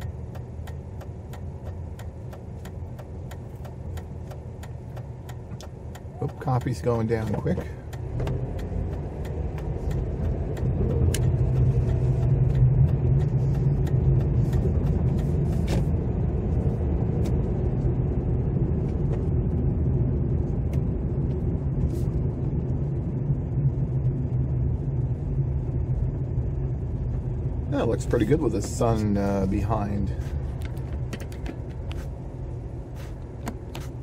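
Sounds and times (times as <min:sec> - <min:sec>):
light regular ticks: 0:00.0 - 0:15.3
engine and tyre rumble: 0:00.0 - 0:34.0.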